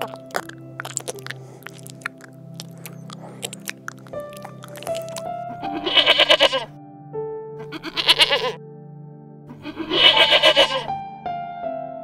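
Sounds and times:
background music with held notes: 0:00.0 - 0:12.0
animal bleating: 0:05.6 - 0:06.7, 0:07.6 - 0:08.6, 0:09.5 - 0:10.9.

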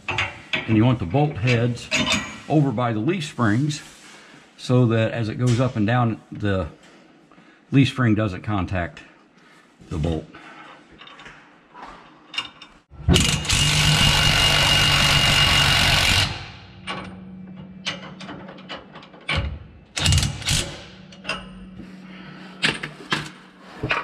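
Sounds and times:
clicks and clanks of tools: 0:00.0 - 0:02.5, 0:12.0 - 0:13.7, 0:16.8 - 0:21.7, 0:22.6 - 0:24.0
impact wrench running: 0:13.0 - 0:17.1, 0:20.0 - 0:21.2.

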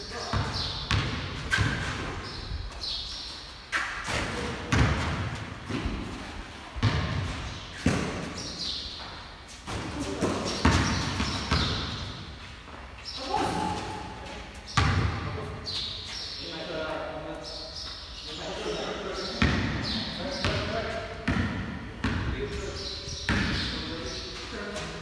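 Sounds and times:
basketball bouncing on concrete: 0:00.3 - 0:02.2, 0:04.1 - 0:06.1, 0:06.8 - 0:08.5, 0:09.7 - 0:12.0, 0:14.8 - 0:15.3, 0:19.4 - 0:22.6.

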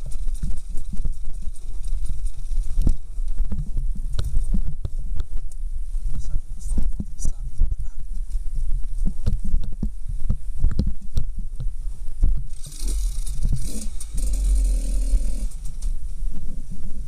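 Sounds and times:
wheels knocking over stones: 0:00.0 - 0:05.0, 0:12.4 - 0:16.0
dirt bike engine at low revs: 0:00.0 - 0:06.2, 0:08.4 - 0:17.0.

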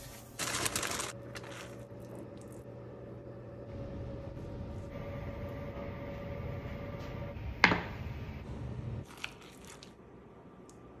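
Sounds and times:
steady hum: 0:00.6 - 0:09.0.

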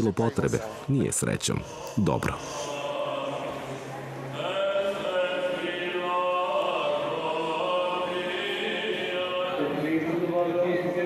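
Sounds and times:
church chanting voices: 0:00.0 - 0:11.0.

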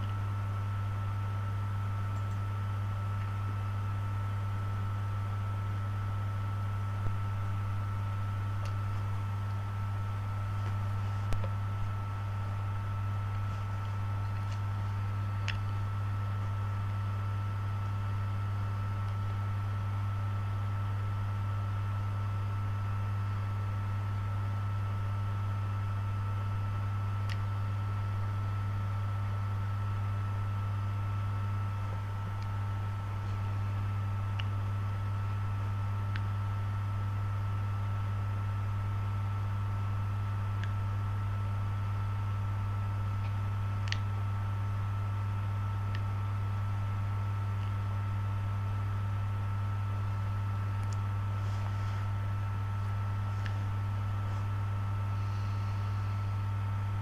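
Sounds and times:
electrical hum with hiss: 0:00.0 - 0:57.0.

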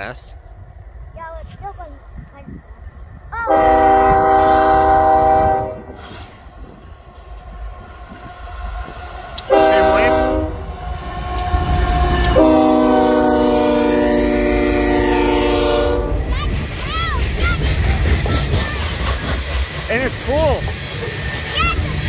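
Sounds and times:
low rumble of train: 0:00.0 - 0:22.0
locomotive air horn blasts: 0:03.5 - 0:06.3, 0:09.4 - 0:10.7, 0:11.4 - 0:16.2.

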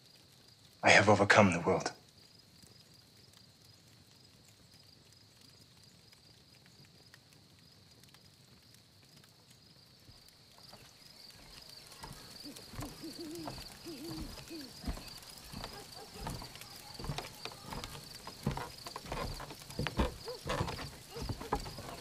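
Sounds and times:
crickets chirping: 0:01.9 - 0:22.0
footsteps on wooden boards: 0:10.1 - 0:22.0
owl hooting: 0:12.4 - 0:16.9.

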